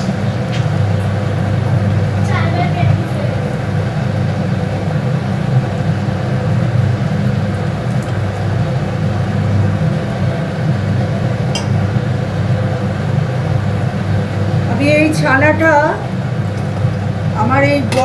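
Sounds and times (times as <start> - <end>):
balls frying in oil: 0.0 - 18.0
steady low hum: 0.0 - 18.0.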